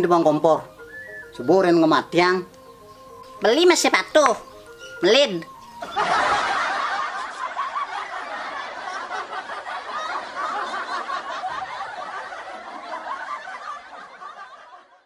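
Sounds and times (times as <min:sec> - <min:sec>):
group of people laughing: 0:05.7 - 0:15.0.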